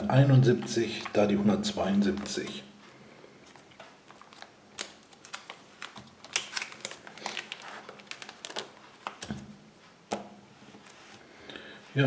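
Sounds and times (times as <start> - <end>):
plastic pages crinkling: 0.3 - 2.6, 3.4 - 9.4
small irregular clicks and crackles: 2.0 - 9.3.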